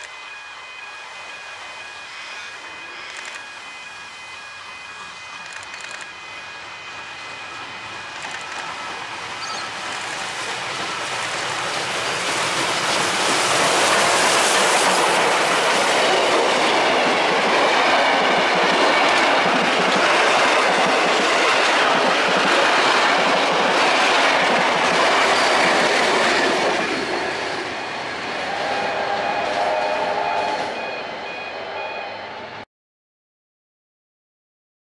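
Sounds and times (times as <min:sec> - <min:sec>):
train carriages rolling on rails: 0:00.0 - 0:32.5.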